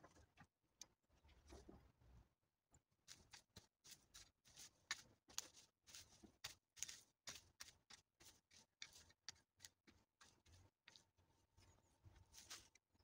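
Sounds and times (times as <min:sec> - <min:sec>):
rake scratching through dry weeds: 0:03.1 - 0:12.9.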